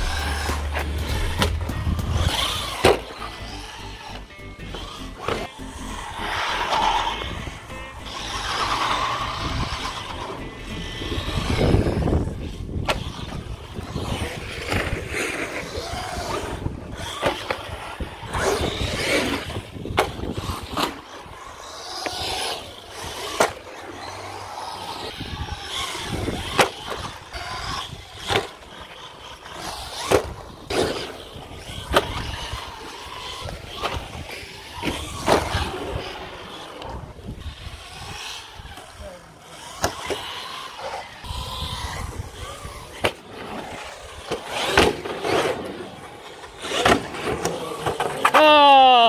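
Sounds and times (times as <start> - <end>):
electric motor whine: 0.0 - 48.3
tyres rumbling on concrete: 0.0 - 48.7.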